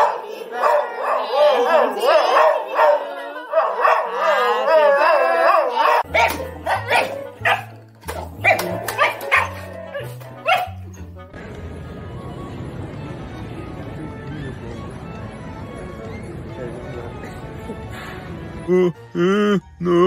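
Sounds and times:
dog howling: 0.0 - 7.7
dog barking: 0.0 - 11.0.

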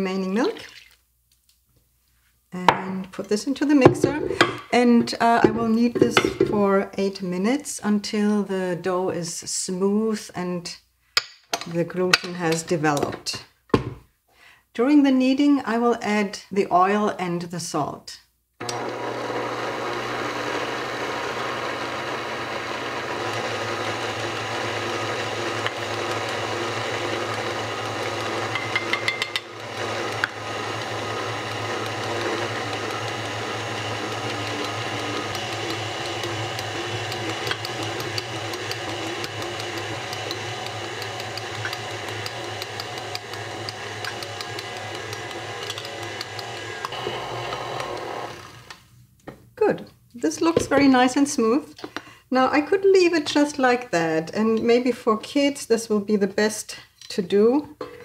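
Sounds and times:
stand mixer kneading dough: 18.6 - 48.7.

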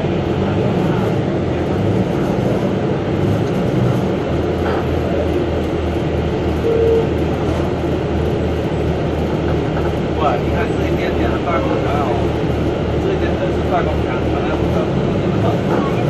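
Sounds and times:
bus engine hum: 0.0 - 16.0
road rumble: 0.0 - 16.0
short high-pitched tone: 6.6 - 7.1.

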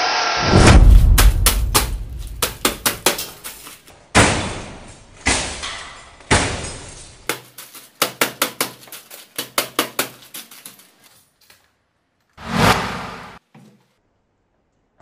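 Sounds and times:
boots stamping on metal shavings: 0.8 - 11.1
metal chips clicking and crunching: 6.7 - 11.6.

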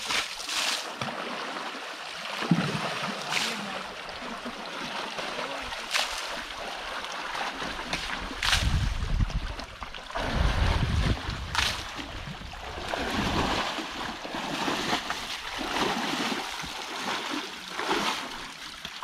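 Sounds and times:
water splashing and sloshing: 0.0 - 19.0
wind buffeting microphone: 8.2 - 13.6.

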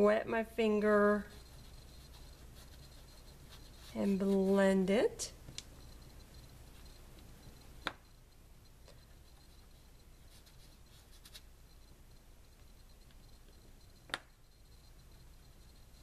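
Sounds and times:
crayon scratching on paper: 0.6 - 4.9, 9.0 - 11.5
fingertips rubbing paper: 1.0 - 4.8.

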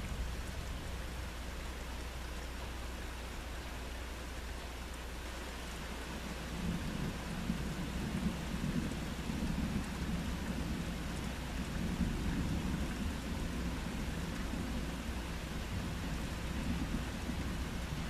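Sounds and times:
steady rain falling: 0.0 - 18.0
low rumble of thunder: 6.5 - 18.0.

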